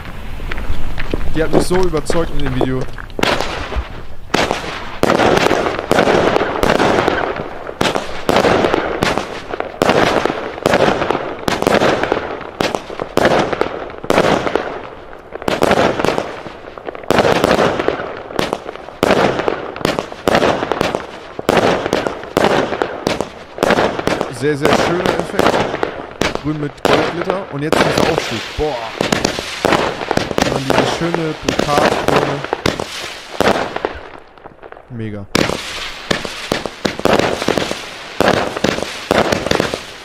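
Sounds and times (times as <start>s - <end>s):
firework battery reports: 0.1s - 17.9s, 18.5s - 34.0s, 34.8s - 39.9s.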